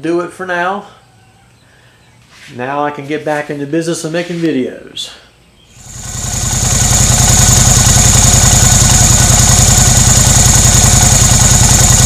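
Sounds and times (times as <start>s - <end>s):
motorcycle engine idling: 5.8s - 12.0s.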